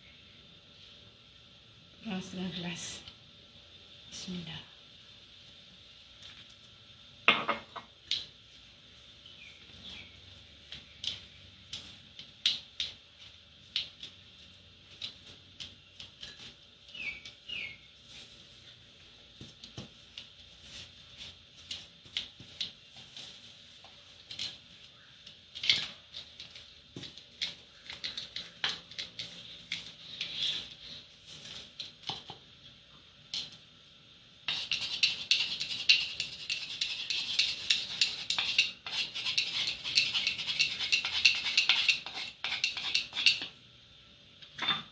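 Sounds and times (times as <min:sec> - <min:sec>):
spatula scraping a metal bowl: 0:34.5 - 0:43.5.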